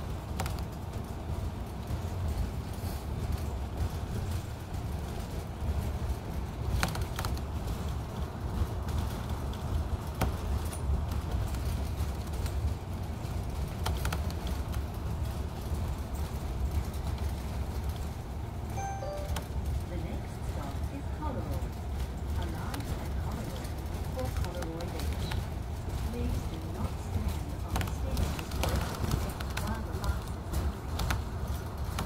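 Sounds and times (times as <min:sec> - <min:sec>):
vehicle engine and road rumble: 0:00.0 - 0:32.0.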